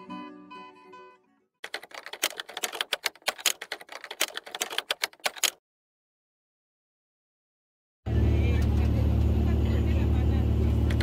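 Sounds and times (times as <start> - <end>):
typewriter key clacks: 1.6 - 5.6.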